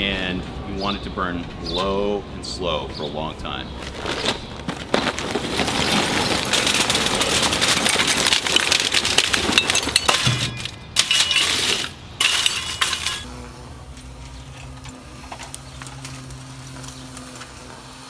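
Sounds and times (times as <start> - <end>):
charcoal clattering onto foil: 4.0 - 13.3, 14.0 - 17.7.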